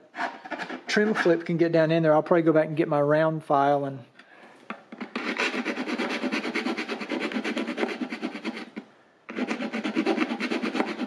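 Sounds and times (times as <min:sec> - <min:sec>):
hand file rasping plastic: 0:00.0 - 0:01.4, 0:05.0 - 0:11.0.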